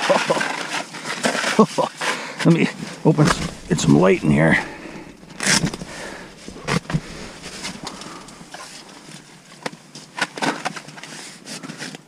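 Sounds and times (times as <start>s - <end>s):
fabric shelter rustling: 2.5s - 10.2s
handling scrapes and knocks: 2.7s - 9.4s.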